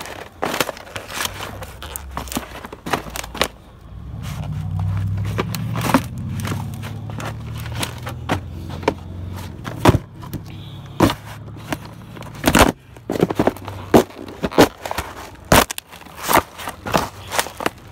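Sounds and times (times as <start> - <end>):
cardboard boxes crushed underfoot: 0.0 - 17.9.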